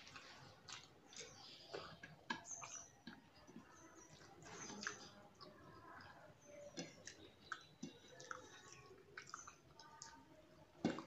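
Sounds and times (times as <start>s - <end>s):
wet mouth clicks and smacks: 0.0s - 3.7s
person chewing food: 0.0s - 11.0s.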